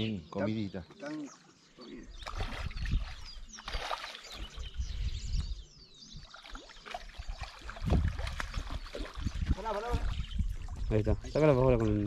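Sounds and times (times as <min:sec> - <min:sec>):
birds chirping: 0:00.0 - 0:12.0
wind buffeting microphone: 0:02.1 - 0:06.3, 0:07.1 - 0:12.0
fish splashing in water: 0:02.2 - 0:04.5, 0:06.2 - 0:10.3.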